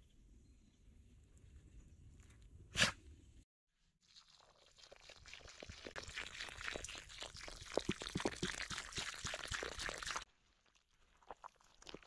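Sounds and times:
water pouring into a hole: 3.9 - 12.0.

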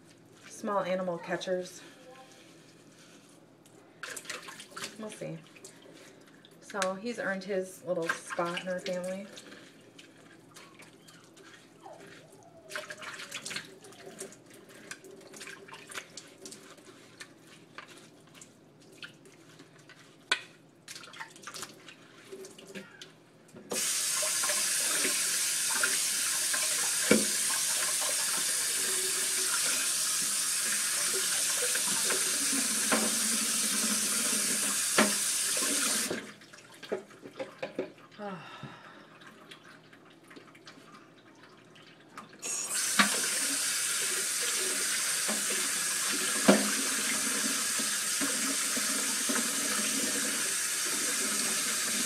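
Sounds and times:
kitchen tap running into sink: 23.7 - 36.4, 42.4 - 52.0.

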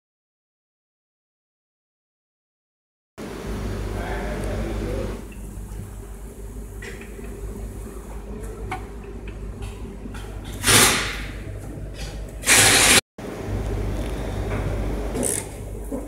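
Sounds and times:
steady low hum: 3.2 - 16.0.

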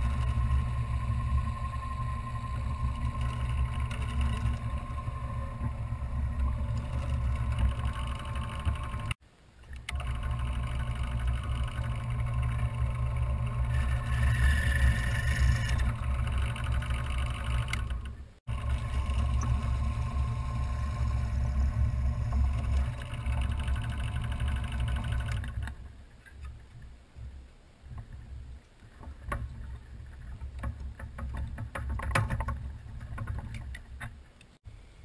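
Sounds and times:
drill press motor humming: 0.0 - 9.2, 9.9 - 25.8.

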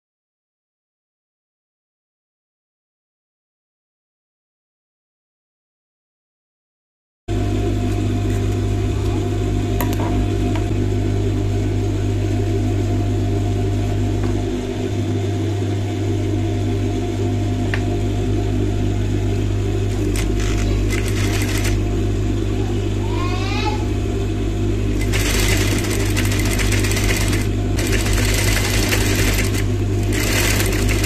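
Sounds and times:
sewing machine motor hum: 19.6 - 22.8, 23.8 - 31.0.

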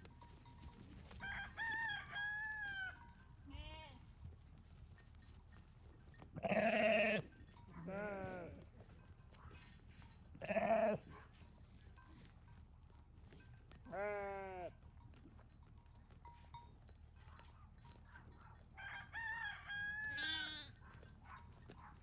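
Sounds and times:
rooster crowing: 1.2 - 3.0, 18.8 - 20.7
sheep bleating: 3.5 - 4.0, 6.4 - 7.2, 7.8 - 8.6, 10.4 - 11.1, 13.8 - 14.8, 20.0 - 20.8.

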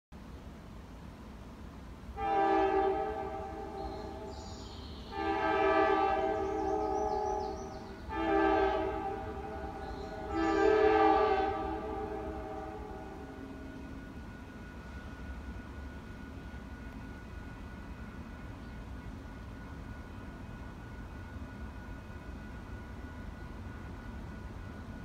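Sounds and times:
locomotive air horn blasts: 2.2 - 4.4, 5.1 - 15.1.

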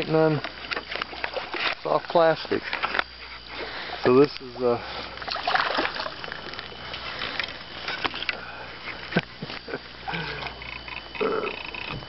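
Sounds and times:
fish splashing at surface: 5.3 - 6.2.

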